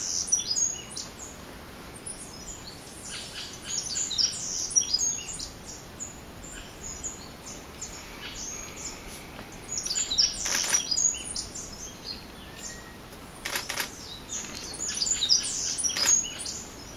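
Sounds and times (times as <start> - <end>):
small birds chirping: 0.0 - 16.9
rustling: 8.6 - 11.0, 13.1 - 16.4.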